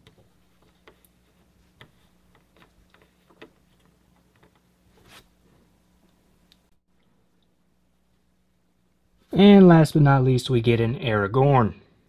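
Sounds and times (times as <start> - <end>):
faint steady hum: 0.0 - 12.0
soft rustle: 0.2 - 5.8.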